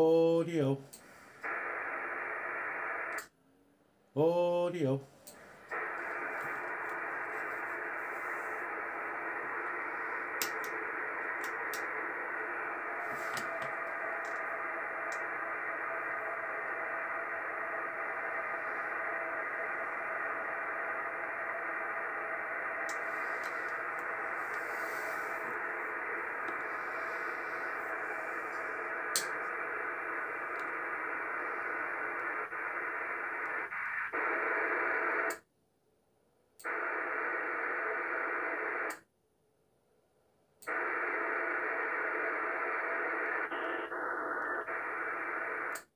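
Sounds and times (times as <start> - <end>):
radio static hiss: 0.0 - 3.4, 4.2 - 35.4, 36.6 - 39.1, 40.7 - 45.9
faint clicks: 3.0 - 3.3, 10.3 - 11.9, 13.3 - 15.3.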